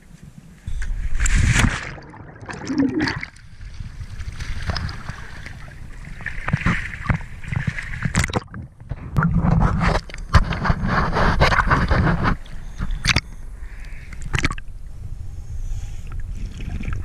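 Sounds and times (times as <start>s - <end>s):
water sloshing and splashing: 1.1s - 13.4s, 14.2s - 14.7s
waves knocking camera: 6.4s - 12.4s.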